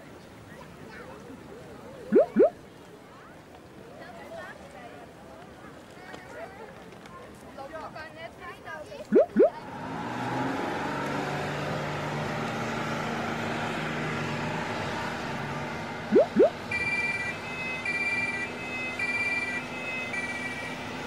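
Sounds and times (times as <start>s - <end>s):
two-tone ambulance siren: 16.2s - 21.0s.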